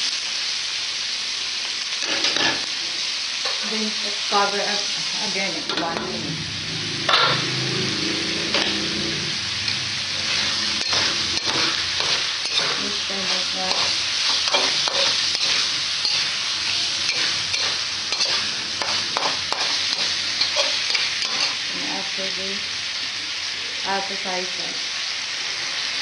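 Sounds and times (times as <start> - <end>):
food sizzling in a metal wok: 0.0 - 26.0
metal spatula scraping a pan: 7.0 - 21.6.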